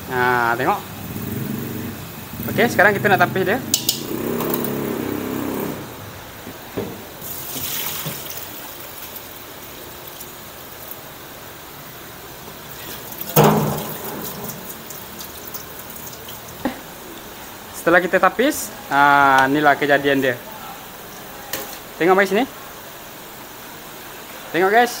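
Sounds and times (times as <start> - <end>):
water pouring into a steel sink: 7.2 - 11.4, 12.2 - 16.7
bowl clunk: 13.3 - 14.8.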